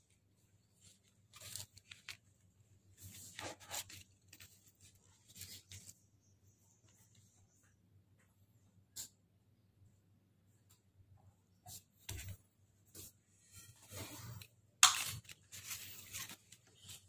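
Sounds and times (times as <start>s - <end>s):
cables and plastic rustling: 0.0s - 7.4s, 11.7s - 17.0s.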